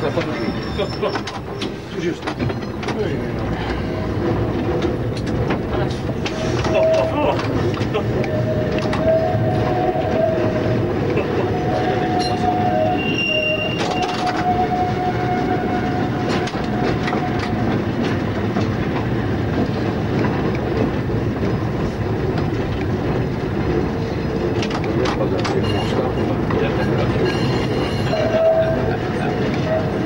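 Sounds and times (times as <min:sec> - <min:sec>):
rail clicks: 0:00.0 - 0:30.0
tram rumbling on track: 0:00.0 - 0:30.0.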